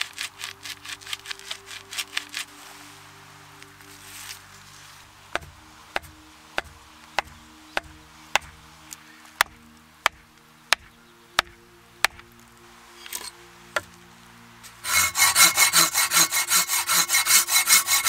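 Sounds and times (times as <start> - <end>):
background music: 0.0 - 18.0
mallet knocking wooden stake: 5.4 - 8.6, 9.4 - 12.2.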